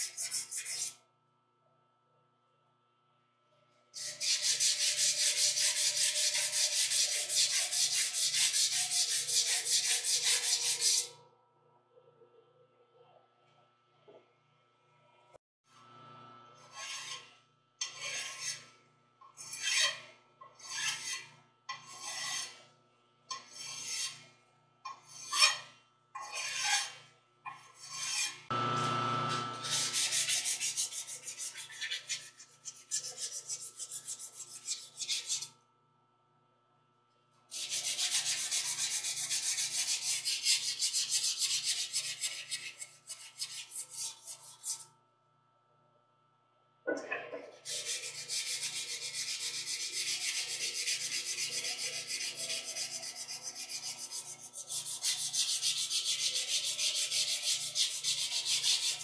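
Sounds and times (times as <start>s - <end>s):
hand file on metal: 0.0s - 1.0s, 4.0s - 11.1s, 16.6s - 18.7s, 19.3s - 22.6s, 23.3s - 24.2s, 24.9s - 28.5s, 29.6s - 35.5s, 37.5s - 44.9s, 47.6s - 59.0s
fast scrubbing polishing: 4.0s - 11.1s, 29.6s - 35.5s, 37.5s - 44.8s, 47.6s - 59.0s.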